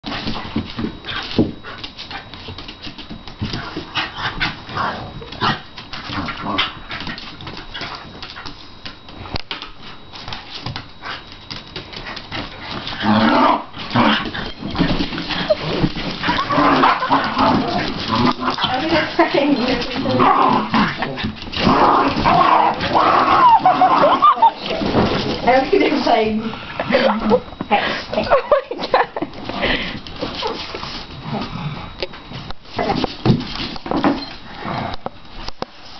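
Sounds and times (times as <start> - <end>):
dogs scuffling: 0.0 - 31.5, 32.1 - 34.5
dogs growling: 3.7 - 8.0, 12.7 - 28.5, 29.4 - 32.1, 34.4 - 35.2.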